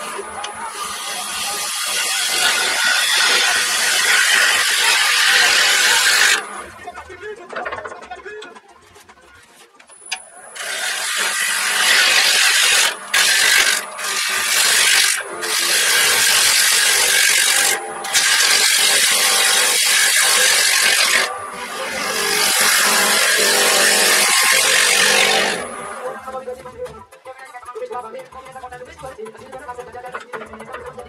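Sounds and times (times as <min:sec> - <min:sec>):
lathe tool shaving wood: 0:00.0 - 0:06.8, 0:10.1 - 0:26.4.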